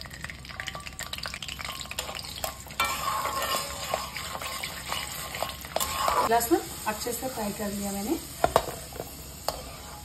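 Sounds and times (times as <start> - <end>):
garlic frying in hot oil: 0.0 - 10.0
metal spatula stirring: 0.7 - 6.4, 8.4 - 10.0.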